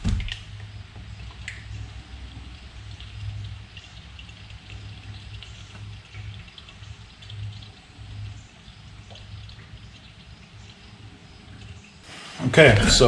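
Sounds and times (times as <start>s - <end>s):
oil pouring through a funnel: 0.0s - 13.0s.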